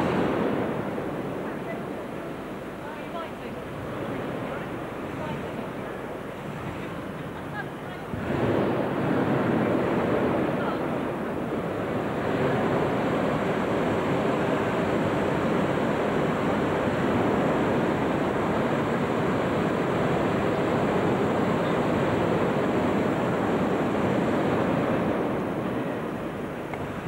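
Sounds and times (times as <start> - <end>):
large crowd: 1.3 - 11.6.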